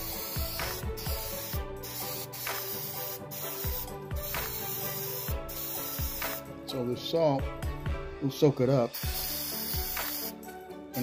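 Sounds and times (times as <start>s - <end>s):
spray can hissing: 0.0s - 6.5s, 8.9s - 11.0s
background music with steady beat: 0.0s - 11.0s.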